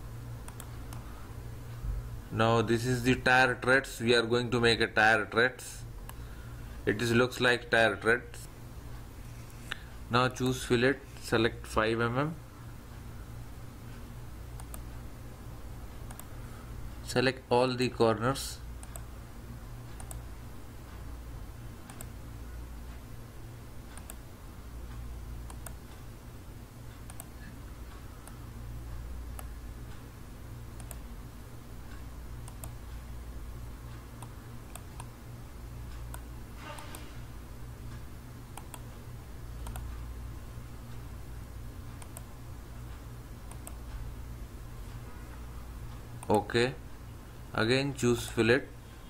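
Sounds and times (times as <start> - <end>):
steady low hum: 0.0 - 49.0
computer mouse clicking: 0.4 - 1.1, 14.6 - 14.9, 16.0 - 16.3, 18.8 - 19.1, 19.9 - 20.3, 21.8 - 22.2, 23.9 - 24.2, 24.9 - 26.0, 26.9 - 27.4, 29.3 - 30.0, 30.8 - 31.1, 32.4 - 32.8, 34.2 - 35.2, 38.5 - 39.0, 39.6 - 40.0, 41.9 - 42.3, 43.4 - 44.0.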